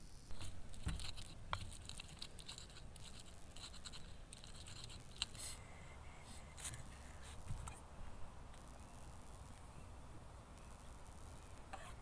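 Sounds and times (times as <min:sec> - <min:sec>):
scratching and scraping strokes: 0:00.3 - 0:05.6.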